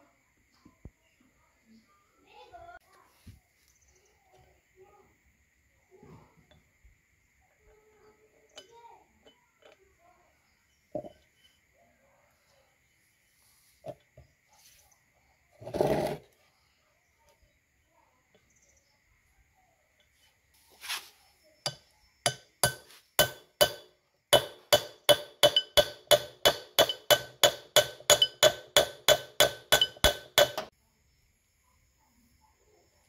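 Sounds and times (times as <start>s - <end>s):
hammer striking metal bolt: 21.7s - 30.7s.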